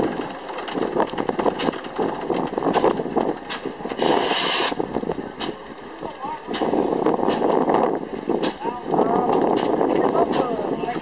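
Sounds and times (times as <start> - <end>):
small steam engine running: 0.0 - 7.0
steam hissing: 2.9 - 5.8.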